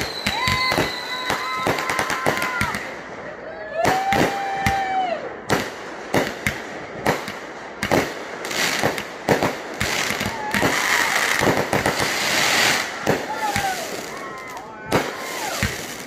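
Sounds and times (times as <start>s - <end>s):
fireworks crackling hiss: 0.0s - 3.1s, 5.6s - 16.0s
fireworks bangs: 0.0s - 16.0s.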